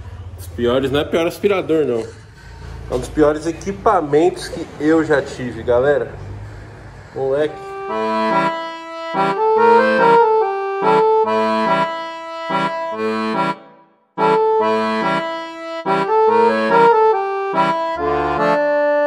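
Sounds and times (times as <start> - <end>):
melody with held chords and bass: 7.6 - 19.0.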